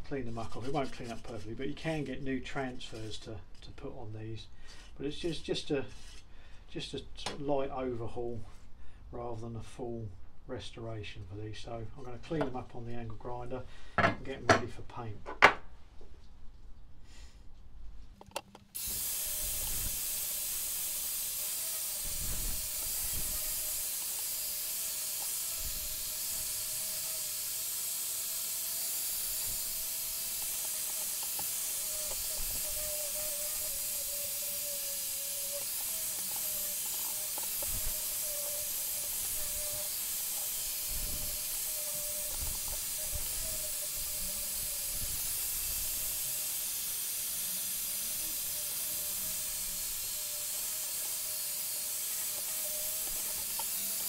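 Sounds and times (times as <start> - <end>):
angle grinder wire brush scouring: 0.2 - 1.6, 18.5 - 54.0.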